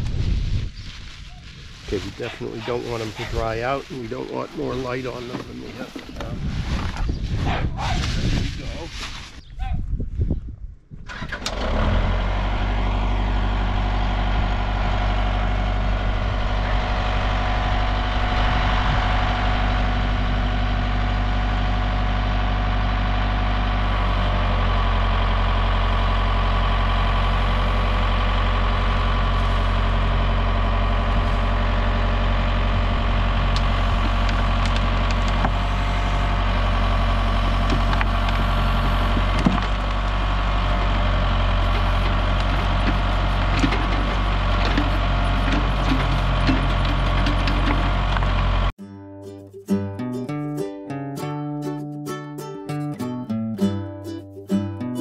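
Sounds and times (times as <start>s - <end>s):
tractor engine running: 11.0s - 48.8s
backhoe digging soil: 11.1s - 48.7s.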